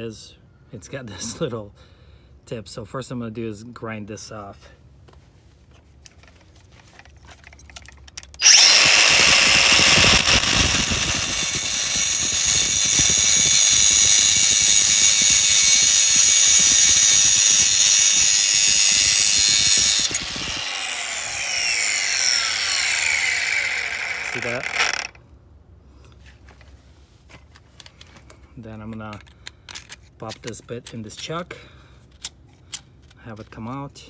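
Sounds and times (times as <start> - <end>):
drill bit grinding on wheel: 8.4 - 25.2
sharpener motor whining: 8.4 - 25.2.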